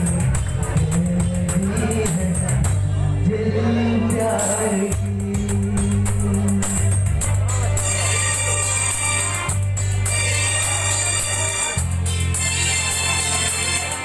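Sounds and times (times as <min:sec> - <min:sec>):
music with jingling percussion beat: 0:00.0 - 0:02.9, 0:04.1 - 0:14.0
man singing into microphone: 0:00.0 - 0:08.9.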